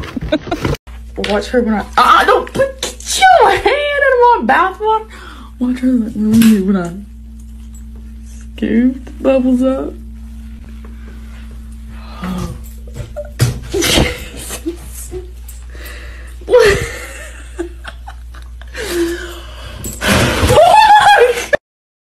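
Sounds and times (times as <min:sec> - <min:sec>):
woman laughing: 0:00.0 - 0:00.8, 0:13.0 - 0:15.4, 0:16.5 - 0:19.4, 0:20.4 - 0:21.6
low steady hum: 0:00.0 - 0:21.6.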